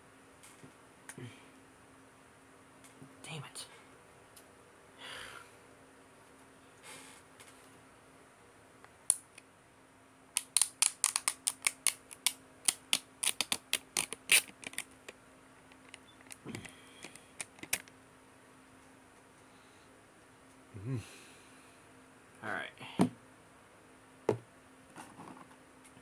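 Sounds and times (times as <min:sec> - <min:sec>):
plastic lid peeling crackle: 0:10.5 - 0:17.9.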